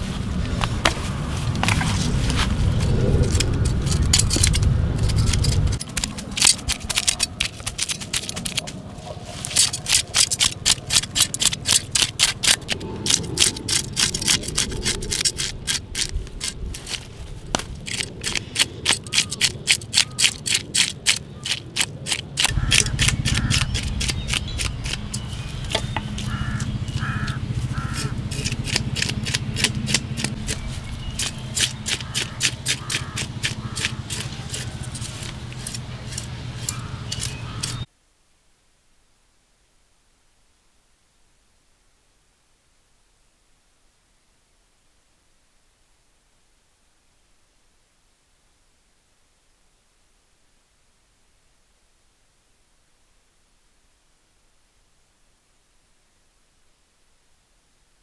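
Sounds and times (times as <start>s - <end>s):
knife scraping fish scales: 9.4s - 17.1s, 17.8s - 37.8s.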